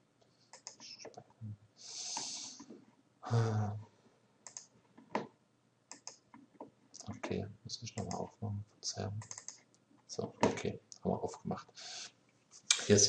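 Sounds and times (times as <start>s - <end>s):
computer mouse clicks: 0.5s - 1.0s, 4.4s - 4.7s, 5.9s - 6.2s, 8.0s - 8.2s, 9.2s - 9.7s
breathing: 1.8s - 2.6s, 11.8s - 12.1s
short vocal sound: 3.3s - 3.8s.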